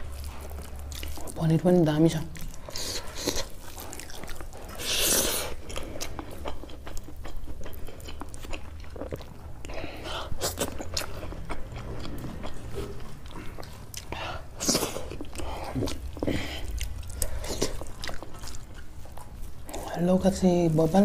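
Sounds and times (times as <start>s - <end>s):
person chewing food: 0.0s - 20.2s.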